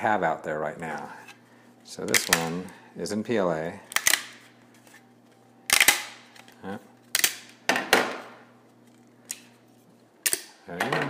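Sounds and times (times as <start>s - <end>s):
plastic cracking and snapping: 2.0s - 2.7s.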